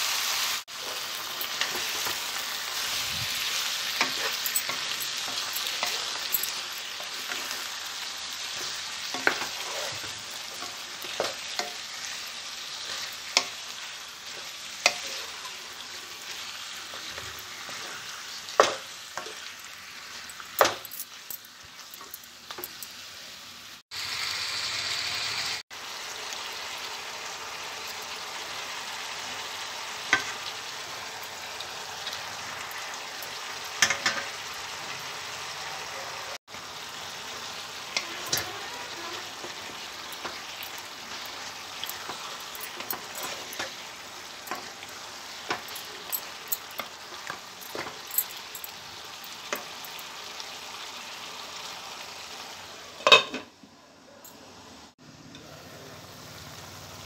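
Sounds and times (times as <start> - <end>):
chicken sizzling in a pan: 0.0 - 57.0
wooden spatula scraping pan: 8.6 - 12.0.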